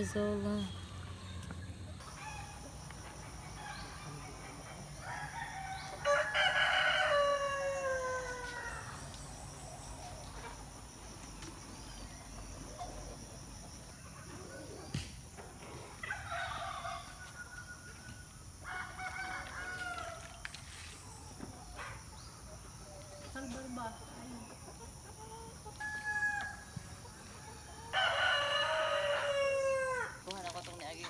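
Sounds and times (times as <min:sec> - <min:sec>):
rooster crowing: 0:05.0 - 0:09.0, 0:27.9 - 0:30.2.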